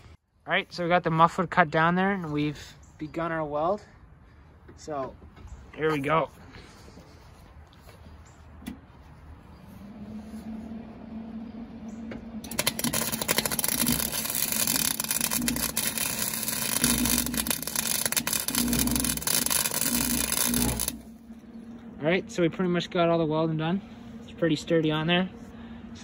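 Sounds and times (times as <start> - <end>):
low steady hum: 0.0 - 26.0
welding arc crackling: 12.4 - 21.2.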